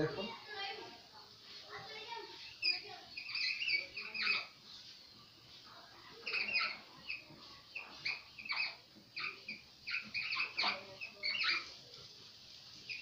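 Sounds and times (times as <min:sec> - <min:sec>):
marker squeaking on whiteboard: 0:02.6 - 0:04.6, 0:06.2 - 0:11.7.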